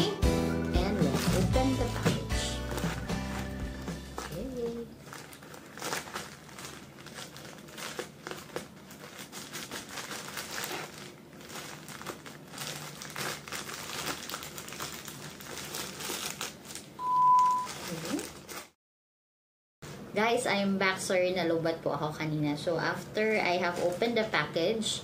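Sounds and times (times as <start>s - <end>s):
plastic pouch crinkling: 1.0s - 17.0s, 17.6s - 18.8s
scissors cutting plastic: 5.8s - 11.2s.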